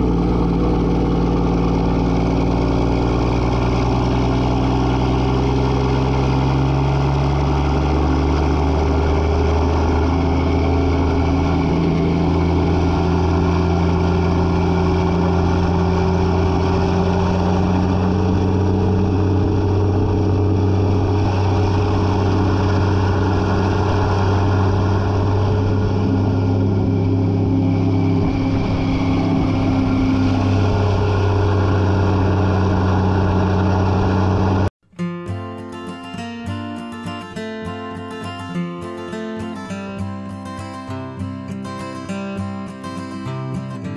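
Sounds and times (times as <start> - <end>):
truck diesel engine running: 0.0 - 34.7.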